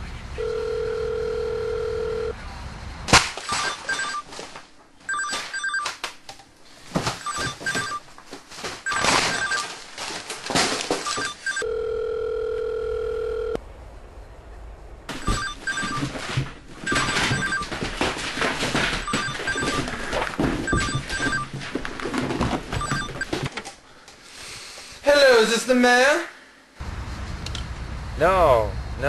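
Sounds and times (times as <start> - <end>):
phone ringing electronic trill: 0.4 - 2.4, 3.5 - 4.2, 5.1 - 5.9, 7.2 - 8.0, 8.9 - 9.7, 11.1 - 13.6, 15.1 - 16.1, 16.8 - 17.7, 19.0 - 20.0, 20.7 - 21.5, 22.8 - 23.4
telephone ringback tone: 0.4 - 2.4, 3.5 - 4.2, 5.1 - 5.9, 7.2 - 8.0, 8.9 - 9.7, 11.1 - 13.6, 15.1 - 16.1, 16.9 - 17.7, 19.0 - 20.0, 20.7 - 21.5, 22.8 - 23.4
rummaging through paper and clutter: 3.5 - 6.0, 6.6 - 11.6, 15.1 - 23.8.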